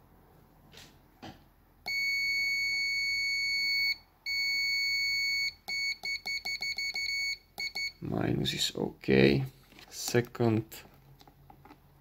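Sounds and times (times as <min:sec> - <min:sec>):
multimeter continuity beep: 0:01.8 - 0:08.0.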